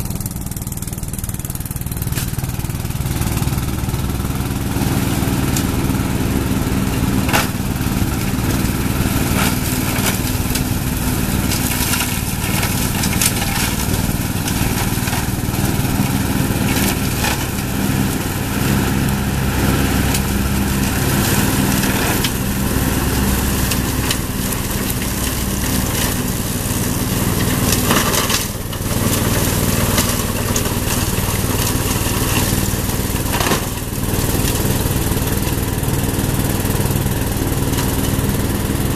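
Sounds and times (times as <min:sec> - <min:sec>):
mower engine running under load: 0:00.0 - 0:38.9
sticks cracking and knocking: 0:02.1 - 0:02.4, 0:11.5 - 0:15.3, 0:27.7 - 0:28.8.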